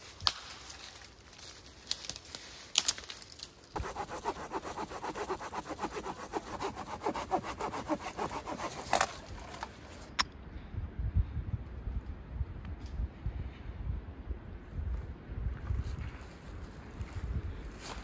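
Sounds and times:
hand saw cutting wood: 3.8s - 10.0s.

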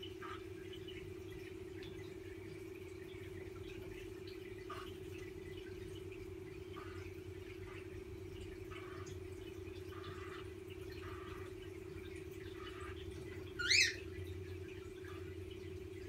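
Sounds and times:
steady low hum: 0.0s - 16.0s
cockatiel chirp: 13.6s - 14.0s.

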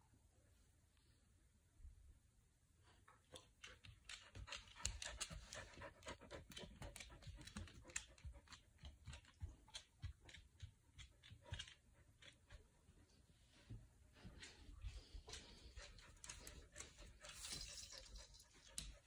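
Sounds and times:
dog claws clicking on hard floor: 3.3s - 12.7s, 14.4s - 19.0s.

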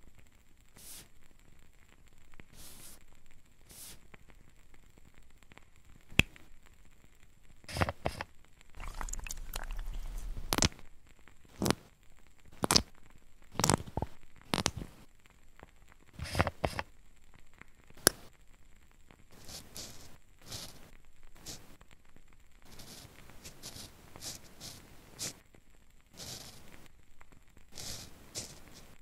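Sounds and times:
rustling scrape: 8.8s - 10.8s, 19.4s - 21.7s, 22.7s - 25.4s, 26.2s - 26.8s, 27.7s - 29.0s.

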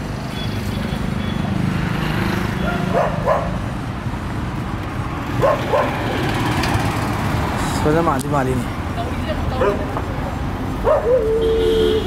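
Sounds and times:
low rumble of street traffic: 0.0s - 12.0s
dog barking: 2.6s - 3.6s, 5.4s - 6.0s, 9.6s - 9.9s, 10.8s - 11.4s.

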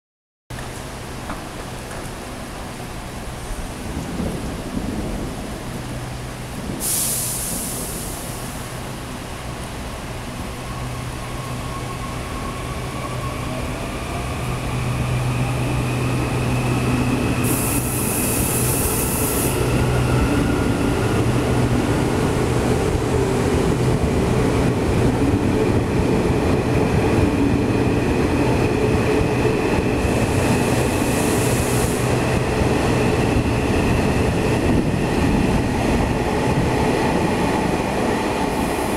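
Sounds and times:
short bursts of high hiss: 6.8s - 8.6s.

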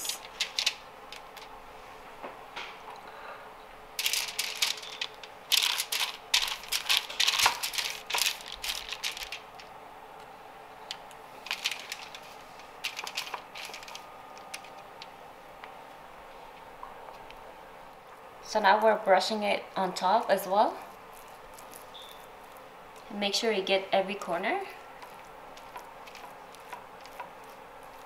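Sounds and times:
aluminium foil crinkling: 0.0s - 1.6s, 4.0s - 9.8s, 10.9s - 15.2s, 18.7s - 28.0s.

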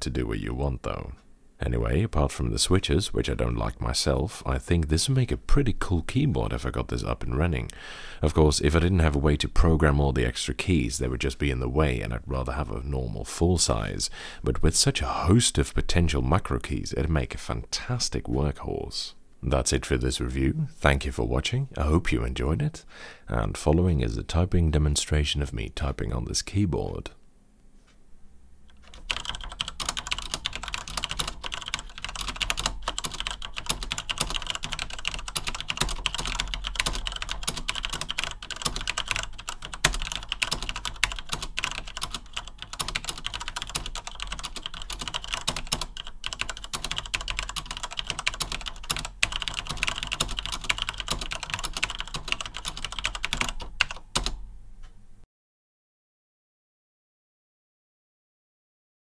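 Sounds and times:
fast keyboard typing: 28.7s - 54.4s.

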